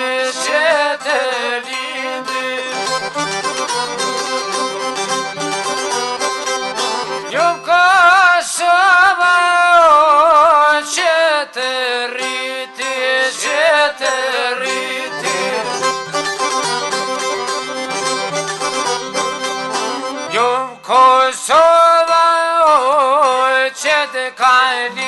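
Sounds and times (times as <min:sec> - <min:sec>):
plucked string notes: 0:00.0 - 0:08.2, 0:12.2 - 0:21.0
wavering lead melody: 0:00.3 - 0:07.9, 0:13.3 - 0:20.9.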